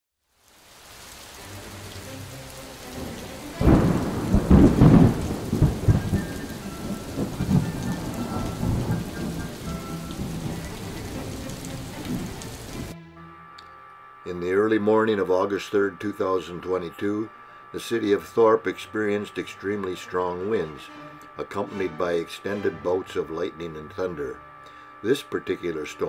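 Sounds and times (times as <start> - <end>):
steady rain: 0.2 - 13.0
thunderclap rumbling: 2.7 - 13.0.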